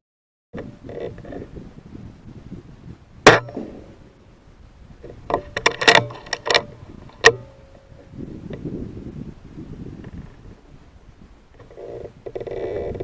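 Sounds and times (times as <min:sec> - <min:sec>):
air rifle shot: 0:03.2 - 0:04.1
metallic clicks of rifle lever: 0:05.3 - 0:07.4.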